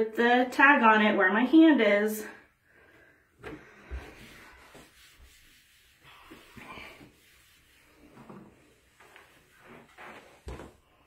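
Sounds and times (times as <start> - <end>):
cloth rubbing on countertop: 3.7 - 10.8.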